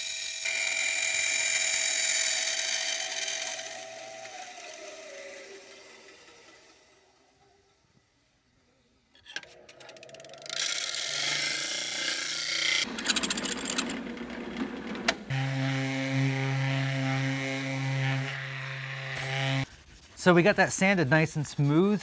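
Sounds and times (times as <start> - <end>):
drill boring into metal plate: 0.0 - 6.9
orbital sander humming: 0.0 - 7.4, 15.2 - 19.7.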